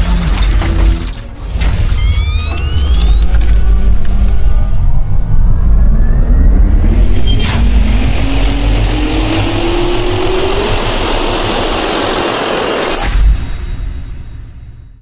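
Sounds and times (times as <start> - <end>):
jet turbine spooling up: 1.8 - 13.0.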